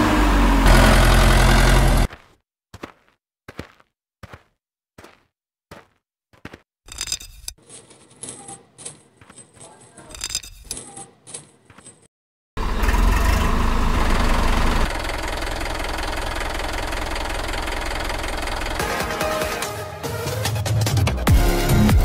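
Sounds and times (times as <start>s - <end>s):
metal chain clinking: 6.9s - 12.1s.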